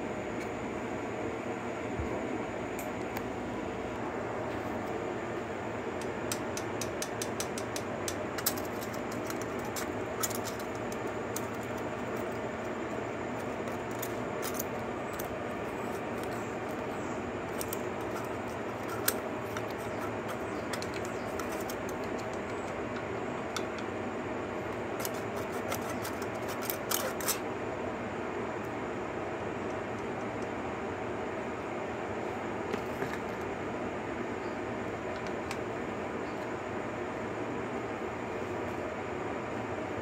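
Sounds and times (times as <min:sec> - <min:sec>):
steady background noise: 0:00.0 - 0:40.0
metallic tool clicks: 0:06.0 - 0:11.8.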